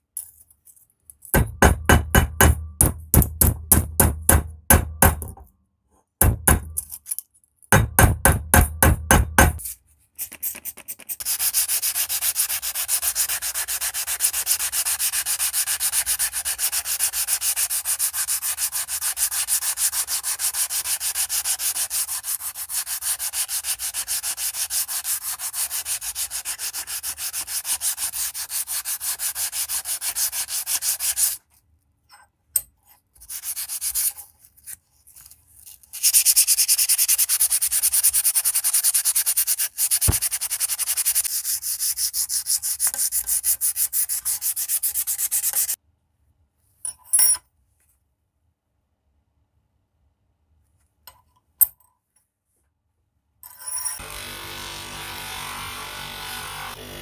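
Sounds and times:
sandpaper rubbing on steel blade: 9.6 - 31.4, 33.2 - 45.8.

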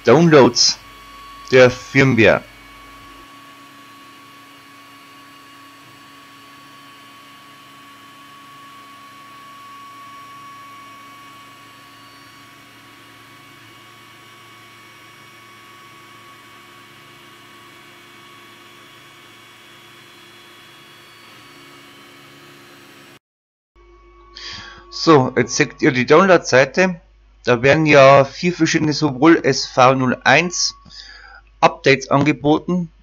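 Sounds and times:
thin high tone: 0.0 - 3.1, 23.8 - 32.2
electrical hum: 0.0 - 23.2, 23.8 - 33.0.

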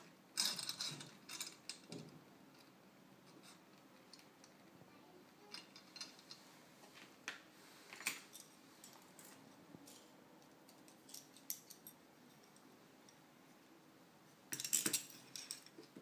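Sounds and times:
small metallic clicks and clinks: 0.4 - 4.7, 5.4 - 6.4, 8.0 - 13.2, 14.5 - 16.0.

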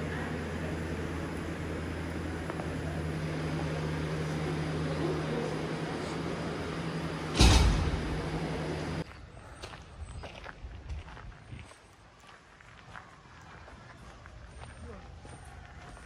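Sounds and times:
low machine hum: 0.0 - 9.5
loud thump: 7.3 - 8.7.

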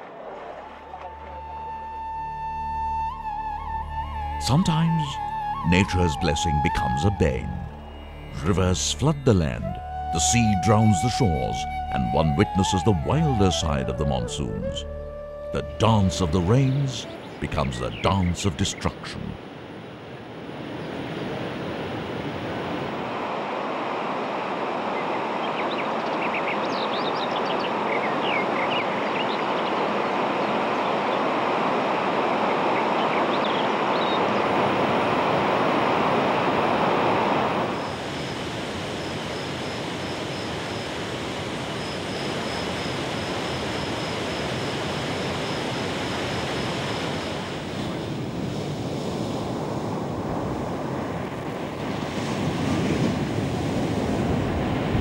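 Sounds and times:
wind: 0.0 - 55.0
surf breaking on beach: 29.9 - 55.0.

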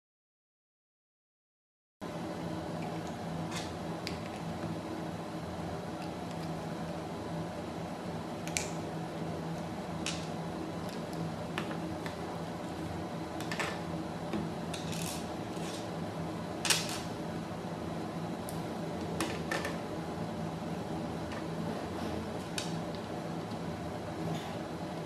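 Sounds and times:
steady low hum: 2.0 - 25.0.

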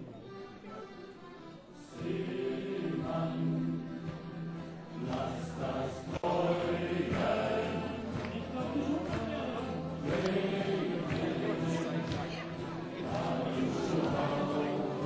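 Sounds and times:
accordion: 0.0 - 15.0
guitar: 0.0 - 15.0
men's group singing: 1.9 - 15.0.

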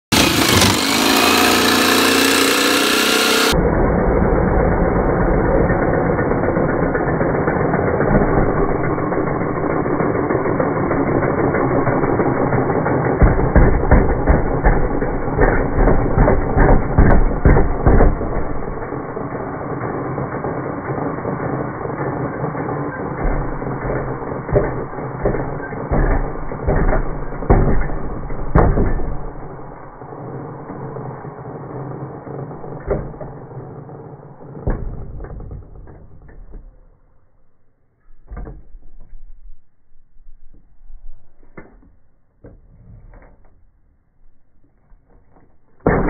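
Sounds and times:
jigsaw cutting wood: 0.0 - 31.2.

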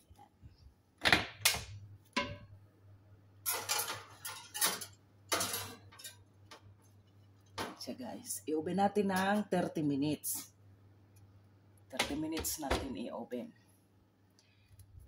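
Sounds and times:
glass dish scraping on wire rack: 3.4 - 6.2.

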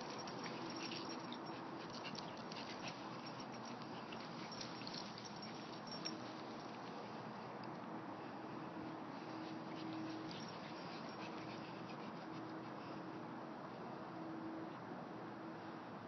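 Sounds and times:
dogs sniffing and scrabbling: 0.0 - 7.3, 8.3 - 13.3.

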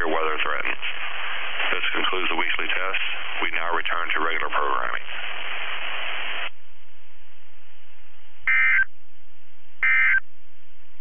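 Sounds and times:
radio static hiss: 0.0 - 6.6, 8.4 - 9.0, 9.8 - 10.2
warbling data tones: 8.5 - 8.9, 9.8 - 10.2.

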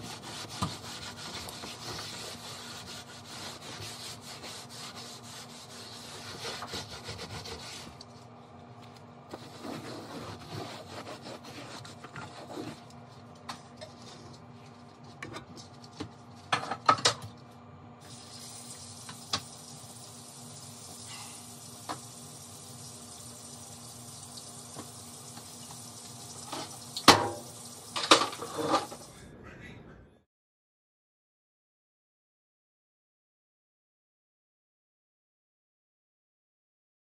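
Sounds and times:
faint hum: 7.6 - 25.3, 28.7 - 30.3
kitchen knocks and clatters: 15.1 - 17.4, 26.4 - 29.0
steady hiss: 18.0 - 29.2.

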